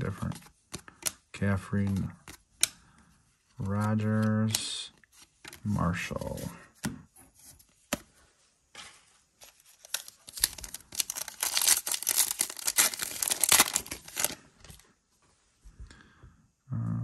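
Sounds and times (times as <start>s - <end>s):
cards being handled: 0.0s - 8.2s, 8.8s - 14.9s
plastic wrapper crinkling and tearing: 9.4s - 14.8s.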